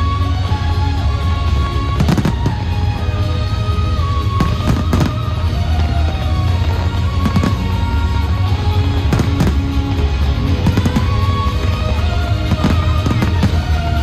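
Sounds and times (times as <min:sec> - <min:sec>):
loud bass-heavy music: 0:00.0 - 0:14.0
fireworks bangs: 0:01.6 - 0:03.2, 0:03.9 - 0:14.0.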